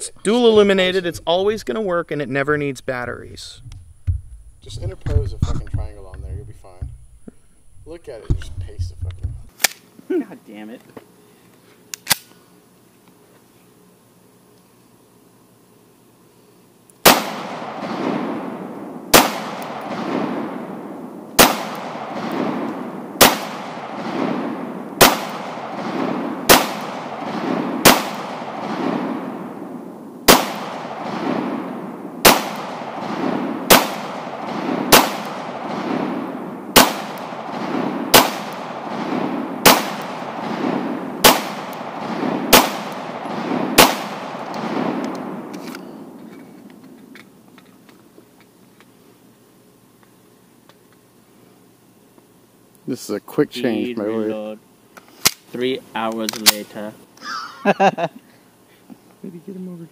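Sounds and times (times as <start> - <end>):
pistol shots: 17.0 - 46.2.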